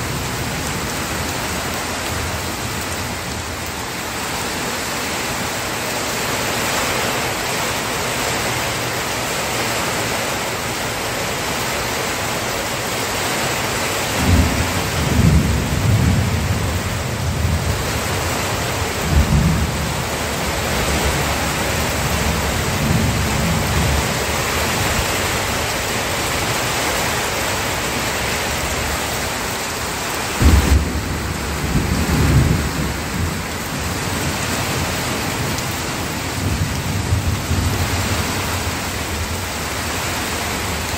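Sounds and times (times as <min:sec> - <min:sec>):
heavy rain: 0:00.0 - 0:40.9
thunder rolling: 0:14.2 - 0:24.2, 0:30.4 - 0:34.4.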